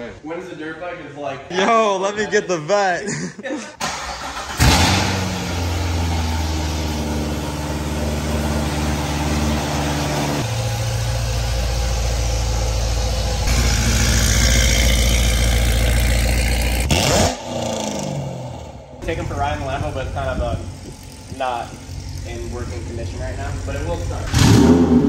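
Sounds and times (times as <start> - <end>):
car engine starting and idling: 3.8 - 25.0.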